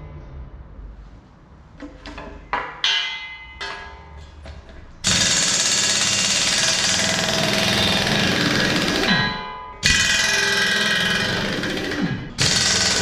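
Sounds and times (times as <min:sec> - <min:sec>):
impact wrench hammering: 0:02.5 - 0:04.2, 0:05.0 - 0:13.0.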